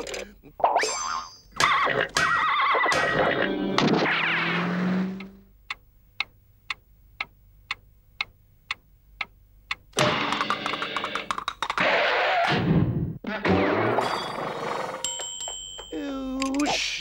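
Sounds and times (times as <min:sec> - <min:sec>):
cartoon sound effect: 0:00.6 - 0:04.6, 0:13.3 - 0:14.7
clock ticking: 0:05.2 - 0:11.4.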